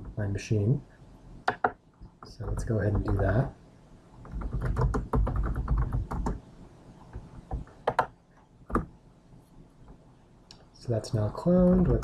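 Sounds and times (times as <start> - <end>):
keyboard typing: 1.5 - 3.4, 4.2 - 6.4, 7.1 - 8.9.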